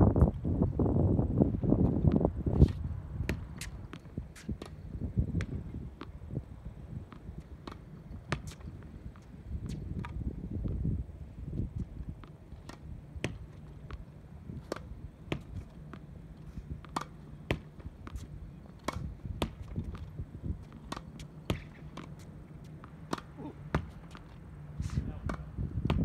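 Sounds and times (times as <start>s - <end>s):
ball hitting wall and court: 12.2s - 14.0s, 16.8s - 20.1s, 20.7s - 22.2s, 22.8s - 24.4s, 25.2s - 26.0s
racket striking tennis ball: 12.2s - 26.0s.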